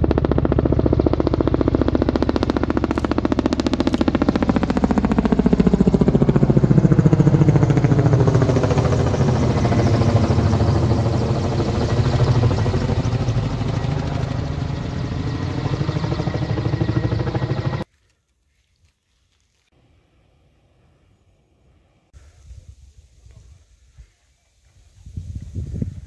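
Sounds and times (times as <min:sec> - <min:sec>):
helicopter rotor chop: 0:00.0 - 0:17.9.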